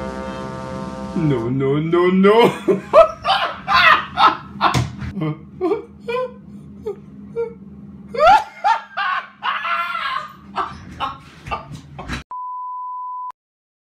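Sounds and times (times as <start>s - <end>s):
people laughing and shrieking: 2.6s - 4.9s, 8.2s - 12.2s.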